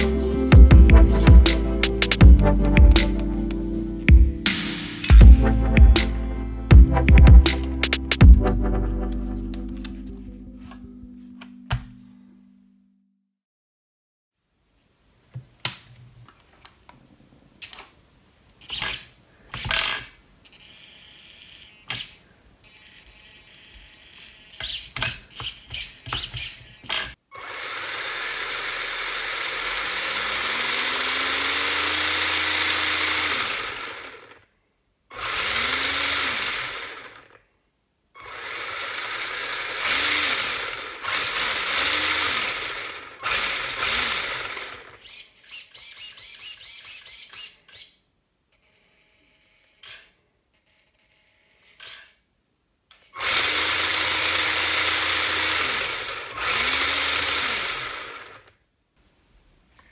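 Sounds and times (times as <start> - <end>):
electric toy motor whining: 18.6 - 34.5, 35.1 - 37.4, 38.2 - 48.0, 48.6 - 52.2, 53.0 - 58.5.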